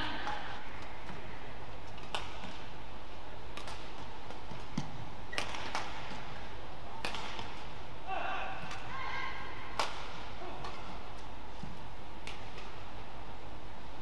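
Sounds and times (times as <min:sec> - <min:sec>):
low background noise: 0:00.0 - 0:14.0
rackets hitting shuttlecock: 0:01.8 - 0:02.8, 0:03.5 - 0:07.7, 0:08.6 - 0:08.9, 0:09.7 - 0:12.8.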